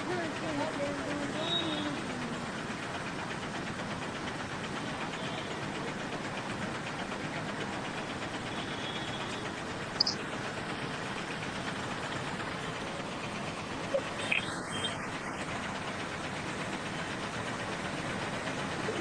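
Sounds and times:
vehicle running inside cabin: 0:07.9 - 0:10.4, 0:12.7 - 0:15.6
high chirp: 0:10.0 - 0:10.2, 0:13.9 - 0:15.0.

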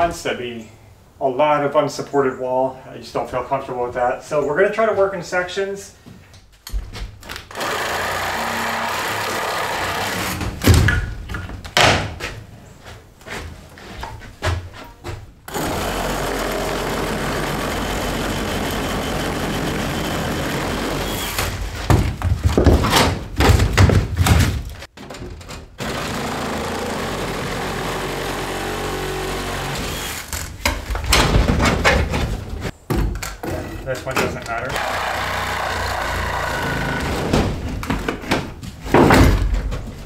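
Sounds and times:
reciprocating saw cutting wood: 0:07.5 - 0:10.5, 0:15.5 - 0:21.6, 0:25.8 - 0:30.6, 0:34.7 - 0:37.3
wood being struck and pried: 0:15.5 - 0:33.6, 0:34.7 - 0:39.7.

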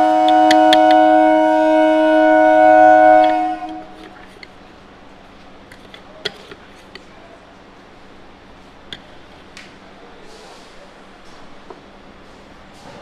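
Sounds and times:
train horn chord: 0:00.0 - 0:04.4.

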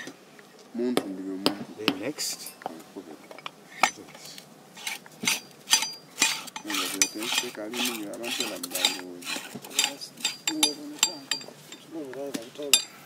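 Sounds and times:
metal clinks and scraping: 0:03.2 - 0:13.0.

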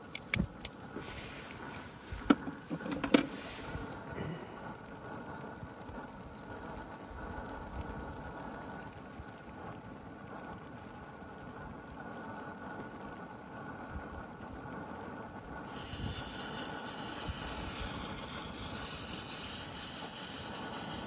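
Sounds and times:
loud steady hiss: 0:00.0 - 0:09.7, 0:14.4 - 0:21.0
stove flame rumbling: 0:00.0 - 0:21.0.

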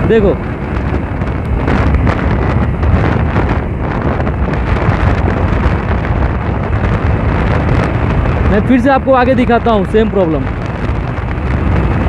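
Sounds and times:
rider talking: 0:00.0 - 0:00.7, 0:08.4 - 0:11.0
wind buffeting microphone: 0:00.0 - 0:12.0.

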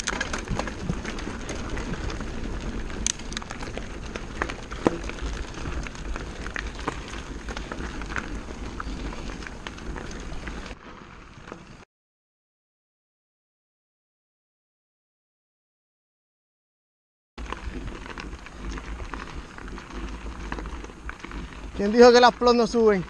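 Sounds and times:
bike rattling over rocks: 0:00.0 - 0:11.8, 0:17.4 - 0:23.0
tyres crunching on loose stones: 0:00.0 - 0:11.8, 0:17.4 - 0:23.0.

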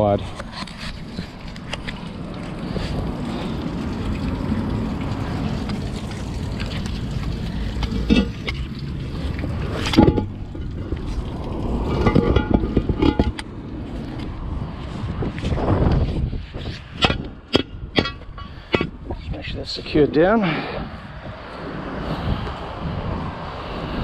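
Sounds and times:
wind rumbling on microphone: 0:00.0 - 0:24.0
heavy manhole cover clunking: 0:07.6 - 0:08.7, 0:09.5 - 0:13.6, 0:16.9 - 0:19.2.

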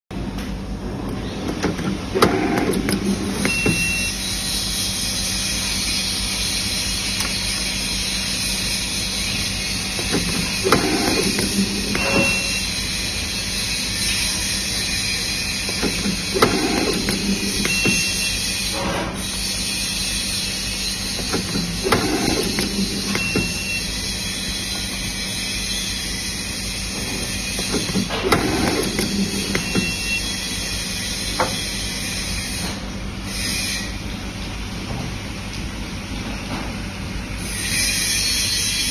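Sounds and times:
machine whirring: 0:00.9 - 0:34.1
machine clatter: 0:15.6 - 0:19.1, 0:21.1 - 0:23.7.

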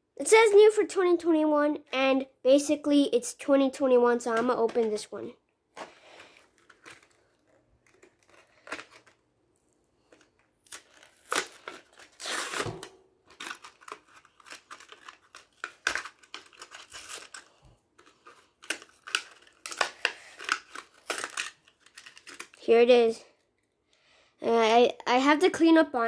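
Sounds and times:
blister packaging tearing: 0:06.1 - 0:22.6.

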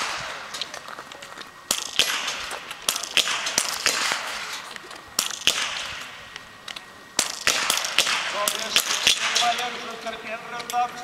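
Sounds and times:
rifle shots cracking: 0:00.0 - 0:00.7, 0:01.7 - 0:06.5, 0:07.2 - 0:10.0
steady background hiss: 0:00.0 - 0:11.0.

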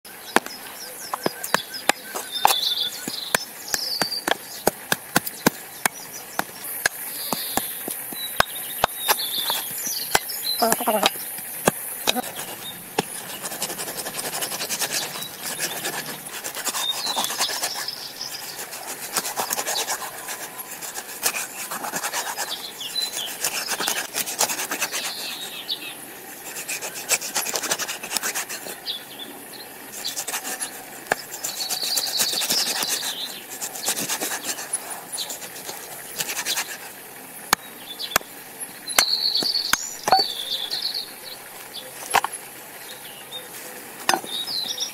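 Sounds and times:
knife cutting through fish: 0:01.1 - 0:25.2, 0:35.3 - 0:36.9
knife knocking on wood: 0:40.1 - 0:40.4.

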